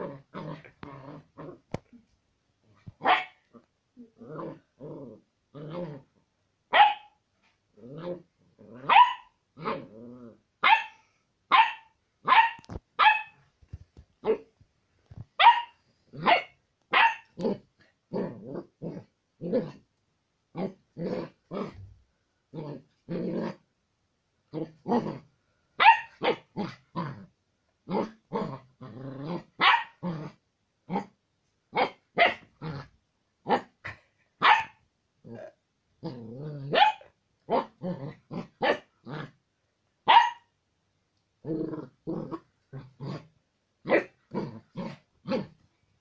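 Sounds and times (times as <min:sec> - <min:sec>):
puppy growling: 0:00.0 - 0:02.0, 0:03.5 - 0:06.2, 0:07.8 - 0:09.0, 0:09.6 - 0:10.4, 0:17.3 - 0:19.8, 0:20.6 - 0:23.6, 0:24.5 - 0:25.3, 0:26.3 - 0:27.3, 0:27.9 - 0:31.1, 0:35.2 - 0:36.8, 0:37.5 - 0:39.4, 0:41.4 - 0:45.6
puppy barking: 0:03.0 - 0:03.5, 0:06.7 - 0:07.2, 0:08.8 - 0:09.8, 0:10.6 - 0:13.4, 0:15.4 - 0:17.4, 0:25.8 - 0:26.5, 0:29.6 - 0:30.0, 0:31.7 - 0:32.5, 0:34.4 - 0:34.8, 0:36.7 - 0:37.7, 0:38.6 - 0:38.9, 0:40.0 - 0:40.5.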